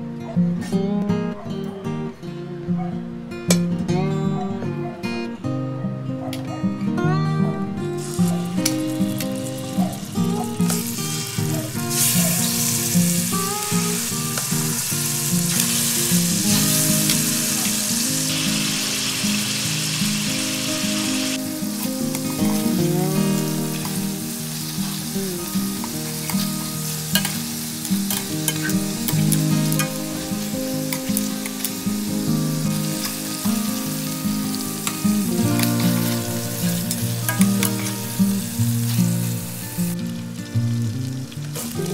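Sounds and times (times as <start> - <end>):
background music: 0.0 - 41.9
chicken sizzling in hot oil: 8.0 - 41.9
metal tongs clicking against pan: 8.2 - 10.1, 27.2 - 27.4, 28.1 - 30.0.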